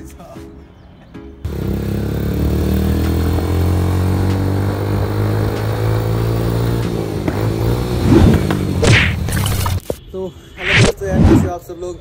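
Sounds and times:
motorcycle engine running: 1.5s - 8.8s.

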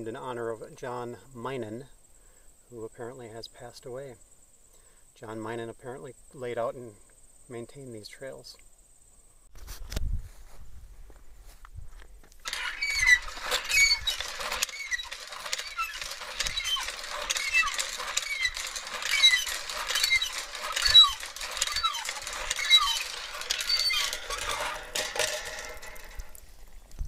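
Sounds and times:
hand pump squeaking: 12.4s - 26.9s
water running from spout: 12.5s - 27.0s.

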